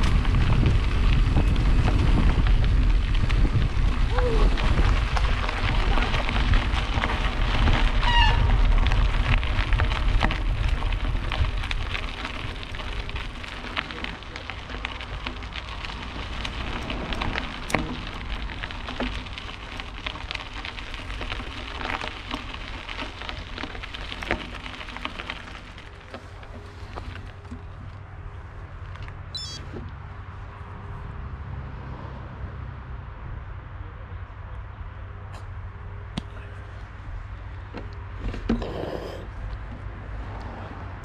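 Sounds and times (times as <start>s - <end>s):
bike clicks and rattles: 0.0s - 30.0s
bike tyres rolling over dirt: 0.0s - 30.8s, 34.3s - 41.0s
wind rumble on microphone: 0.0s - 41.0s.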